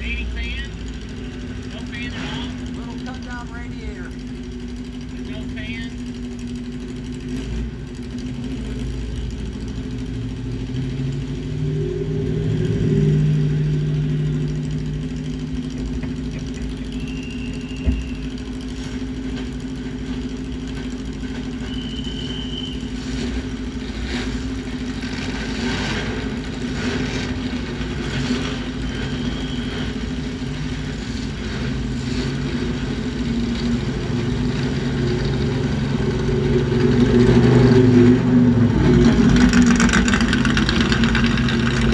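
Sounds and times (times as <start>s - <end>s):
race car engine idling and revving: 0.0s - 41.9s.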